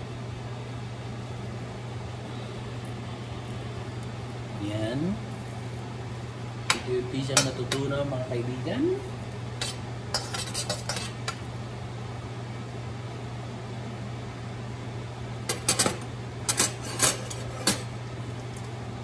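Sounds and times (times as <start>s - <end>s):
steady low hum: 0.0s - 19.0s
spoon scraping metal wok: 9.6s - 11.3s.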